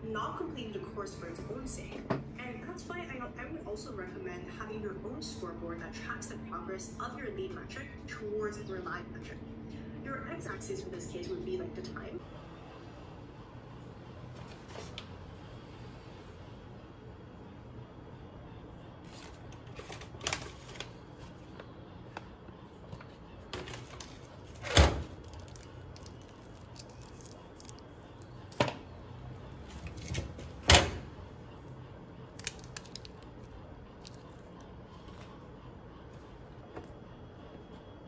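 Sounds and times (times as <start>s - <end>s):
steady low hum: 0.0s - 38.0s
plastic food packets handled: 19.0s - 28.9s, 32.3s - 35.4s.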